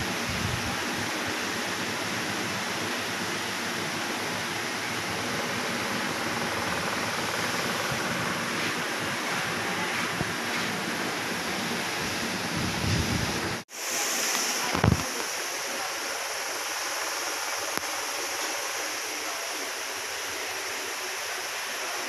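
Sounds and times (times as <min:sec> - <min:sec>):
rushing hiss: 0:06.9 - 0:22.0.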